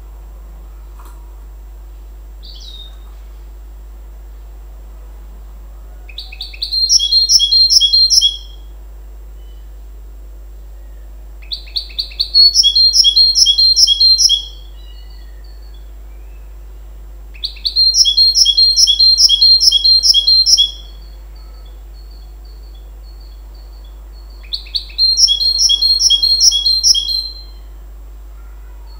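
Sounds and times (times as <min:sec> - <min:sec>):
finch singing: 0:02.4 - 0:03.6, 0:05.8 - 0:08.7, 0:10.6 - 0:27.8.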